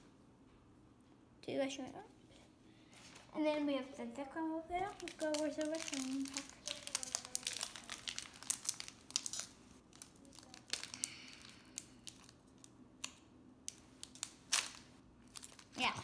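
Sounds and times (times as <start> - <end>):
foil wrapper crinkling: 4.8 - 16.0.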